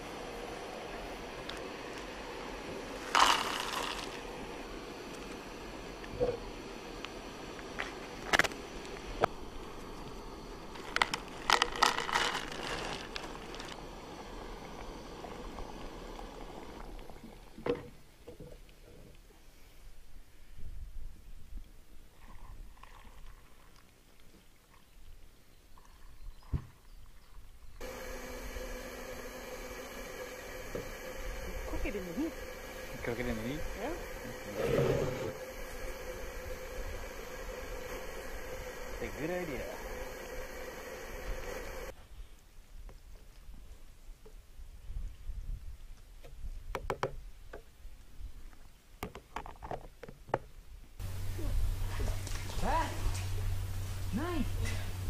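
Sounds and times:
gas stove burning hiss: 0:00.0 - 0:17.6, 0:27.8 - 0:42.0, 0:51.0 - 0:55.0.

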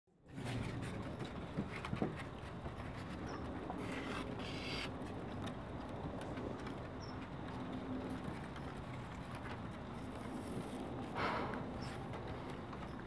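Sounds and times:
puppies scuffling on wood: 0:00.4 - 0:11.1.

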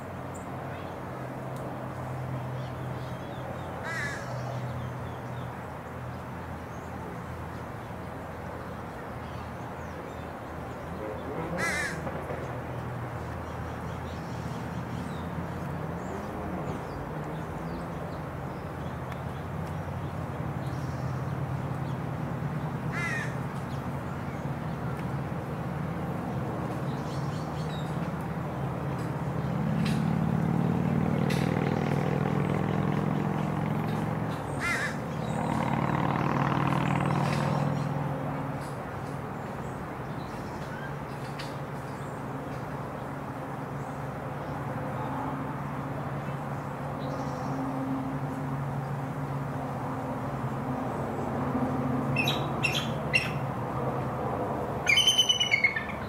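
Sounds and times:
eagle chirping calls: 0:52.2 - 0:53.4, 0:54.8 - 0:56.0.

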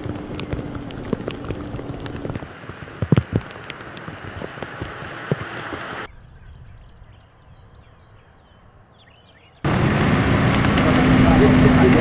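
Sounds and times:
birds chirping: 0:00.0 - 0:02.6, 0:03.4 - 0:09.9
wind and rain hiss: 0:00.0 - 0:07.7, 0:09.7 - 0:12.0.

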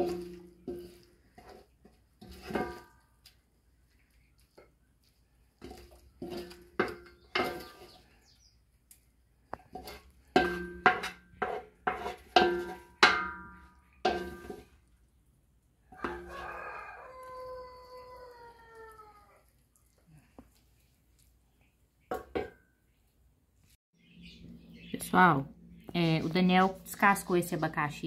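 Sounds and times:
wooden spoon knocking metal pot: 0:00.0 - 0:01.1, 0:01.8 - 0:03.0, 0:05.6 - 0:07.9, 0:09.6 - 0:14.6, 0:22.1 - 0:22.6
rooster crowing: 0:16.0 - 0:19.3.

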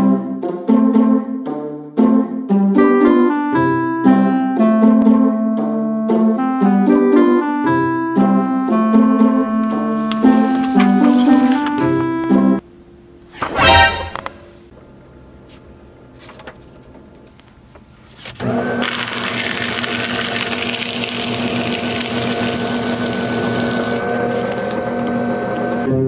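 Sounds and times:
paper shredder running: 0:09.4 - 0:12.5, 0:18.2 - 0:25.9.

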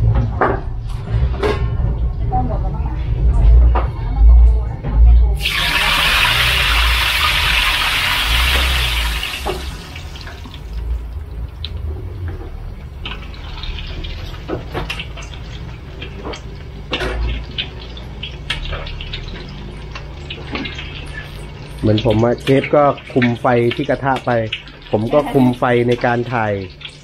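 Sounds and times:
eggs sizzling in hot oil: 0:05.4 - 0:11.8, 0:12.9 - 0:27.0.

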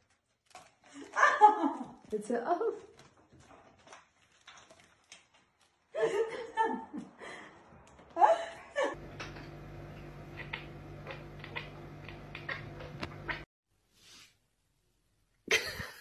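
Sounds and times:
person laughing: 0:05.9 - 0:07.6, 0:08.2 - 0:09.0, 0:15.5 - 0:16.0
steady low hum: 0:08.7 - 0:13.4.

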